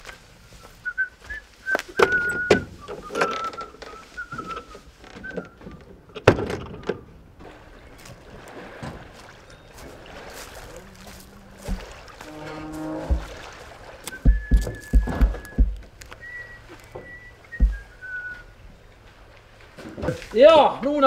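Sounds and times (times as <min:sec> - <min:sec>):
person whistling a tune: 0:00.0 - 0:05.8, 0:14.0 - 0:18.6
wooden doors knocking: 0:14.2 - 0:15.8, 0:17.6 - 0:17.8
loud thump: 0:14.3 - 0:15.8.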